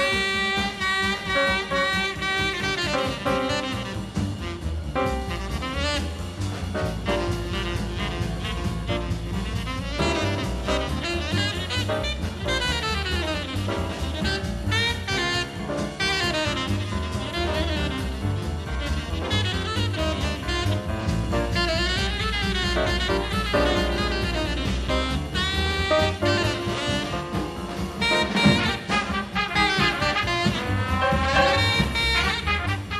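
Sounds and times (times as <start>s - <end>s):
bass and drums: 0.0s - 32.9s
jazz horn melody: 0.0s - 32.9s.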